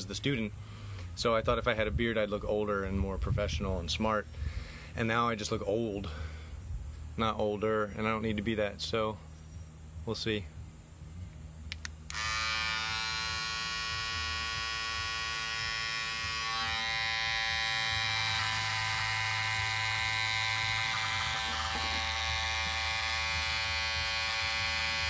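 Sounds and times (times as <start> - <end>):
hair clipper buzzing: 11.7 - 25.0.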